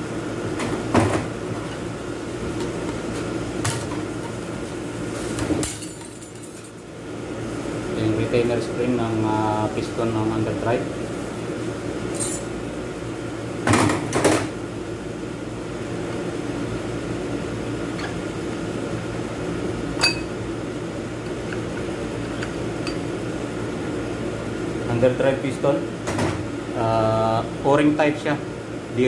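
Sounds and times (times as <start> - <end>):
steady hum: 0.0 - 29.0.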